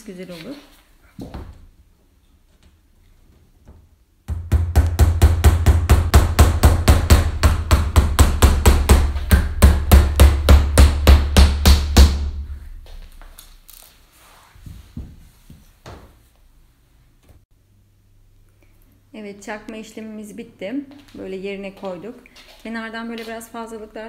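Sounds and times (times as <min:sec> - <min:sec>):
fast knocks: 0:04.3 - 0:12.5.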